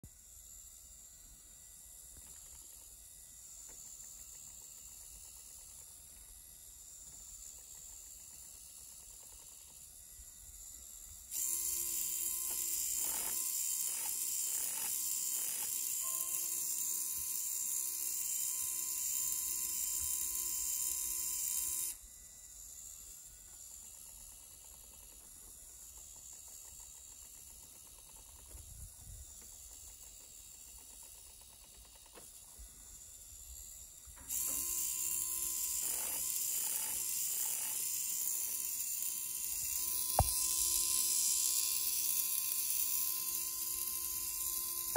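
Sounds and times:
servo motor whirring: 0.3s - 44.9s
gear clicks: 23.8s - 32.5s.

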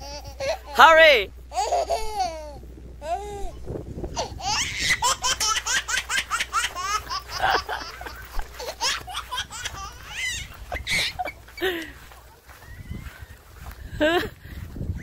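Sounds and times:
young child laughing: 0.0s - 0.9s, 1.5s - 3.6s, 4.2s - 12.2s.

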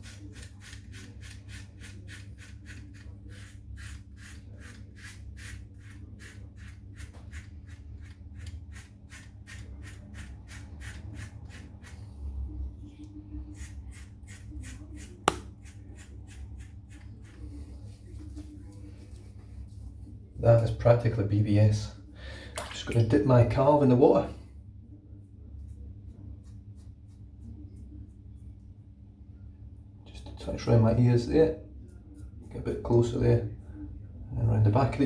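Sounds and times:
razor scraping stubble: 0.0s - 12.1s, 13.5s - 17.4s.

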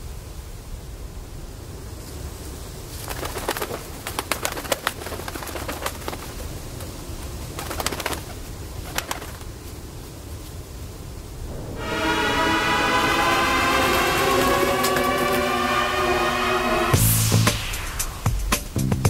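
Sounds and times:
bird wings flapping: 2.9s - 9.8s
low steady rumble: 11.3s - 17.3s.

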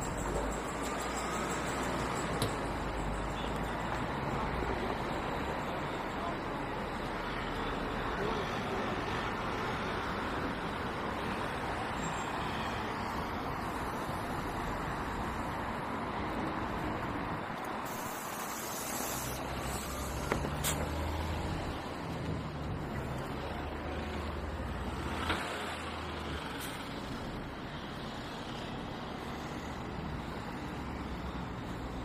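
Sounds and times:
heavy engine humming: 0.0s - 8.9s
road traffic passing: 0.0s - 32.0s
short hiss: 17.8s - 20.9s.

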